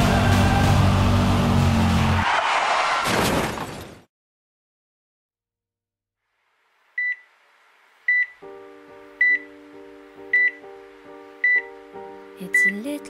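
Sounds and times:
heart monitor beeping: 9.2 - 9.4, 10.3 - 10.6, 11.4 - 11.7.

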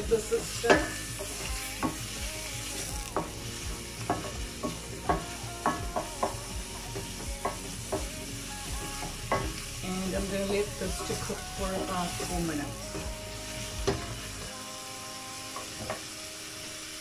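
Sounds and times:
onion sizzling in a pan: 0.0 - 17.0
wooden spoon knocking on pan: 0.4 - 2.1, 4.0 - 6.5, 13.8 - 14.1.

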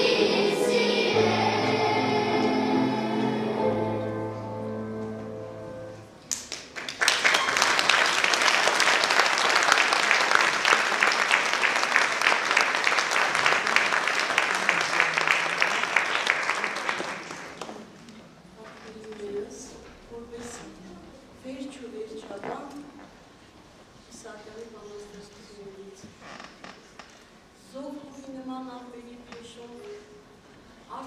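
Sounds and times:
children's choir singing: 0.0 - 6.0
audience applauding: 6.3 - 17.9.

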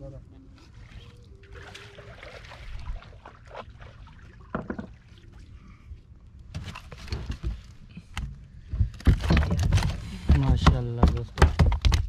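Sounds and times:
knocks and thuds on wooden deck: 8.7 - 12.0.

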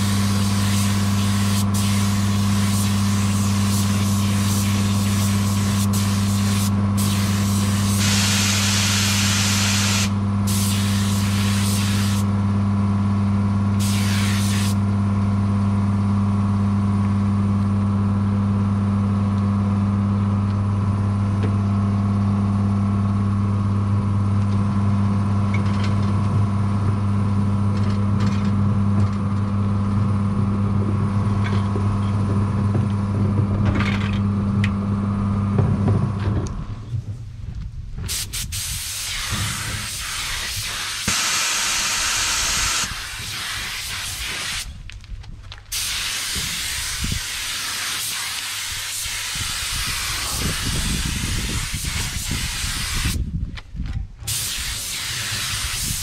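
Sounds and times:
spray gun hissing: 0.0 - 12.3, 13.8 - 14.8, 38.1 - 44.7, 45.7 - 53.2, 54.3 - 56.0
air compressor humming: 0.0 - 22.2, 38.0 - 44.8, 45.7 - 53.3.

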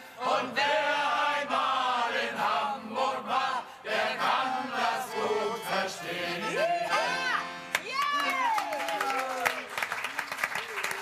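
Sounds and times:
accordion: 0.0 - 7.9
male choir singing in unison: 0.1 - 7.2.

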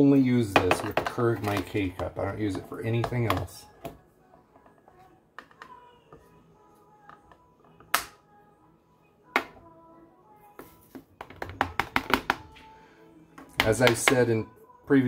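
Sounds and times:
faint background music: 0.0 - 15.0
plastic scoop scraping coffee: 0.5 - 3.6.

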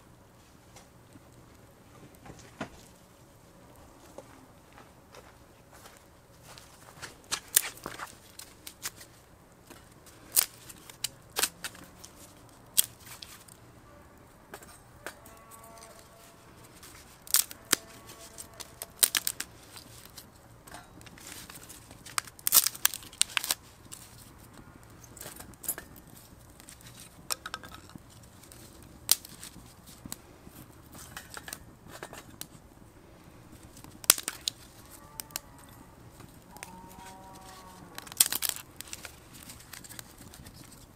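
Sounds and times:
wood fire crackling: 0.0 - 40.9
sticks clacking against steel stove: 14.5 - 30.2, 30.9 - 32.6, 33.6 - 40.9.

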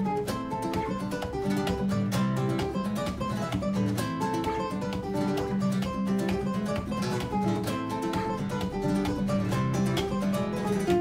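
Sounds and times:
acoustic guitar music: 0.0 - 11.0.

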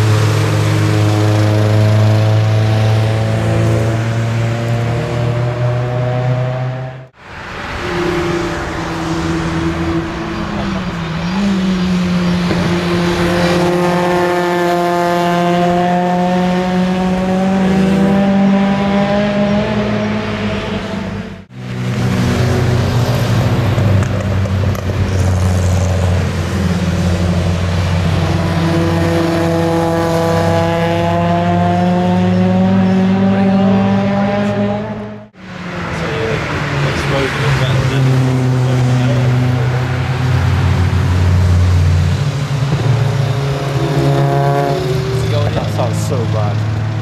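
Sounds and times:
car engine running hard: 0.0 - 47.0.

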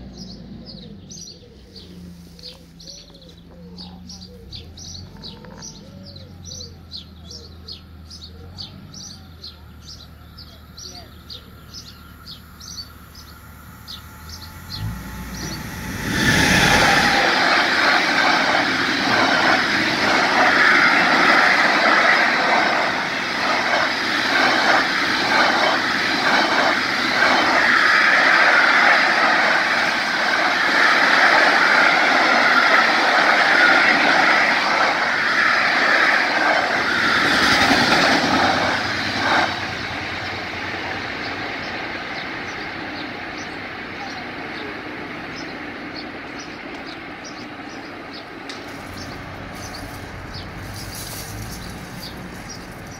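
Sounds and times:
freight train passing: 0.0 - 52.9
train wheels clacking on rail joints: 48.5 - 52.9.

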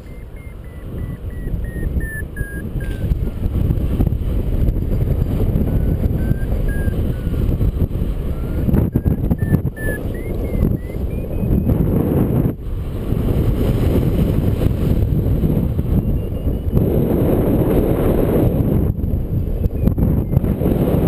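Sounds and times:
variometer electronic beeps: 0.0 - 3.2, 4.5 - 12.6, 15.7 - 16.9, 19.4 - 20.7
wind rushing over microphone: 0.0 - 21.0.

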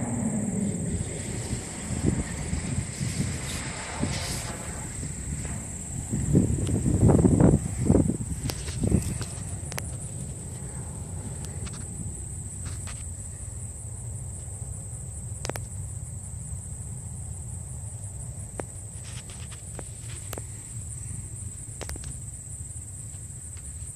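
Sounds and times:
low rumble: 0.0 - 15.2
insects droning: 0.0 - 23.9.

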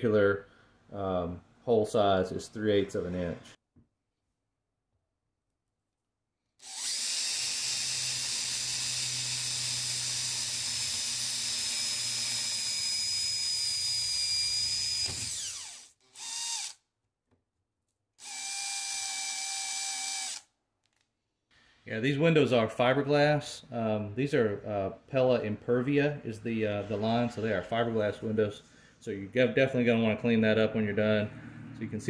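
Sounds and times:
cordless drill boring: 6.6 - 16.8, 18.2 - 20.5.

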